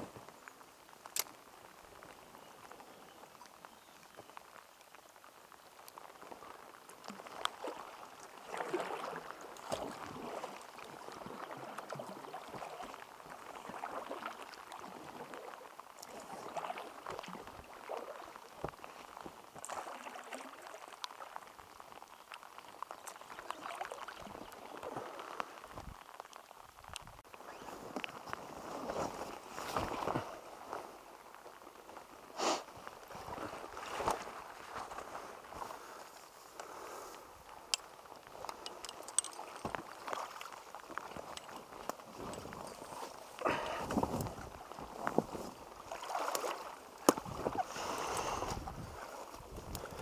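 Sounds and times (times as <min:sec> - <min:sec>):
rain patter on water: 0:00.0 - 0:50.0
paddle splashing in water: 0:06.0 - 0:26.4, 0:37.6 - 0:50.0.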